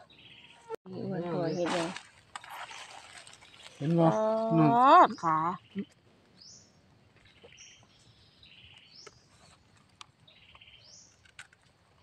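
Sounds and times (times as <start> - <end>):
knife clicking in soil: 11.0 - 12.0.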